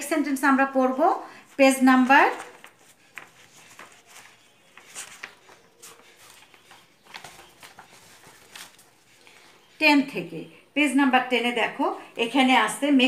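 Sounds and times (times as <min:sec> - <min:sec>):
paper pages rustling: 0:01.5 - 0:09.8.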